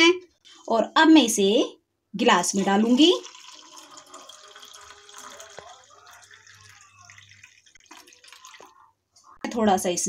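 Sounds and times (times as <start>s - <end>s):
liquid pouring into a glass: 2.6s - 8.9s.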